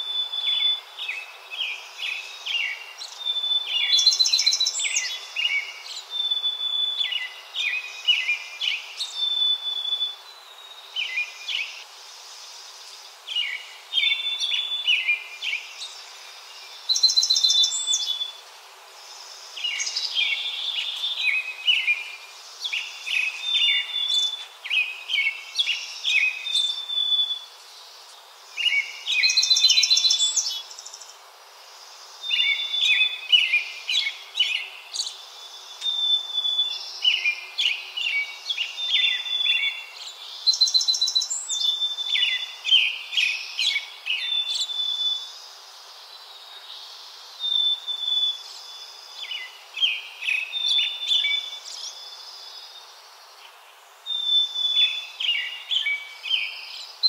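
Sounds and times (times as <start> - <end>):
small songbird singing: 0.0 - 57.0.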